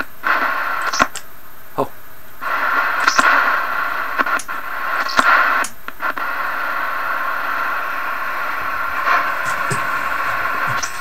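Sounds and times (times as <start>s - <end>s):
radio static hiss: 0.0s - 11.0s
sharp clicks and pops: 0.8s - 1.3s, 3.0s - 3.4s, 4.2s - 5.9s, 9.0s - 11.0s.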